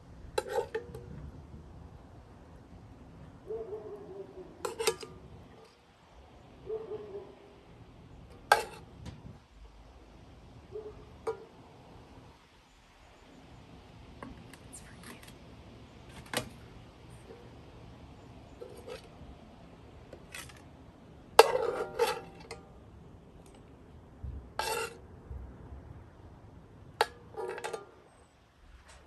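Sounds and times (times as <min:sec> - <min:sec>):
metal spoon scraping skillet: 0:00.4 - 0:01.0, 0:04.6 - 0:05.8, 0:08.3 - 0:08.9, 0:18.5 - 0:19.2, 0:20.1 - 0:20.7, 0:21.4 - 0:22.7, 0:24.6 - 0:25.0, 0:27.0 - 0:28.2.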